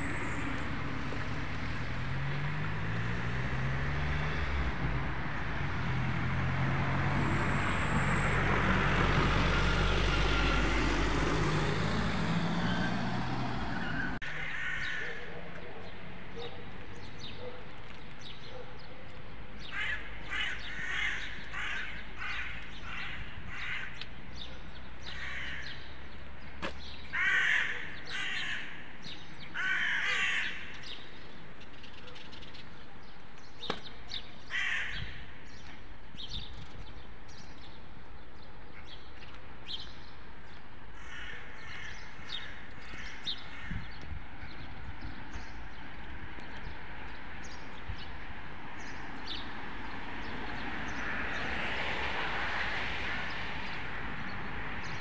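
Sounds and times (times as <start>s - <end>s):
crows cawing: 13.8s - 15.3s, 19.6s - 24.0s, 25.1s - 25.8s, 27.1s - 28.9s, 29.5s - 30.8s, 34.5s - 35.2s, 41.0s - 43.9s.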